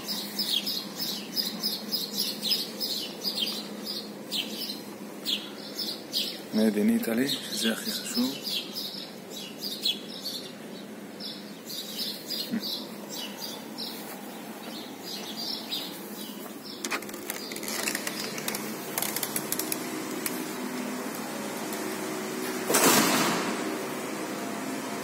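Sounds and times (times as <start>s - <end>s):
birds chirping: 0.0s - 22.7s
steady hiss with clicks: 16.8s - 22.9s.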